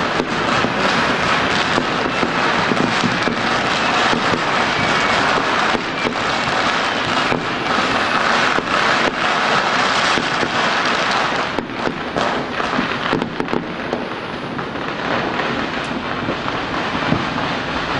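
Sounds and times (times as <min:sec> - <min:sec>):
firecrackers and fireworks crackling: 0:00.0 - 0:17.9.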